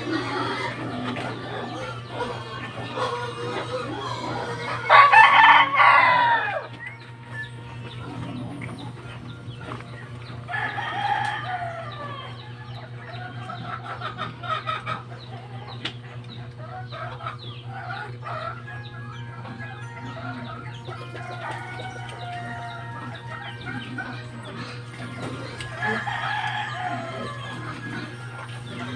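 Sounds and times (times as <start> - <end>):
chickens clucking: 0.0 - 28.9
steady low hum: 0.0 - 28.9
rooster crowing: 3.4 - 7.0, 10.5 - 12.9, 19.8 - 24.5, 25.1 - 28.9.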